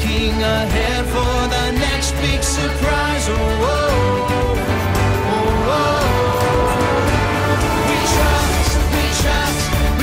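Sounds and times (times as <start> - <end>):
upbeat pop worship song: 0.0 - 10.0
person singing long note: 4.3 - 9.6.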